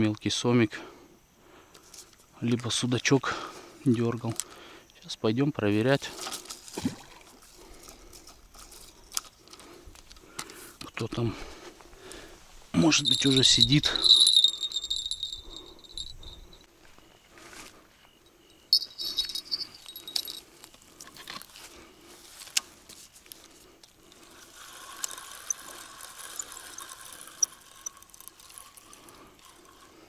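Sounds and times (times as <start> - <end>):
fishing tackle clicking and rattling: 12.8 - 16.6, 18.7 - 21.5, 23.8 - 30.0.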